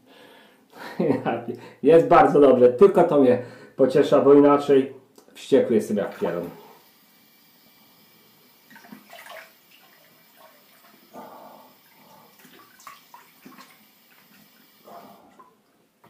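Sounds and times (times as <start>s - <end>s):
faint water splashing at sink: 6.0s - 6.9s, 8.5s - 15.8s.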